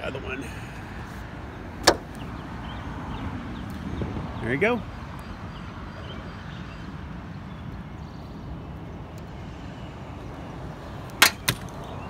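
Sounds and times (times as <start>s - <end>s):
outdoor background noise: 0.0s - 12.0s
gas strut snapping onto stud: 1.8s - 2.2s, 11.2s - 11.7s.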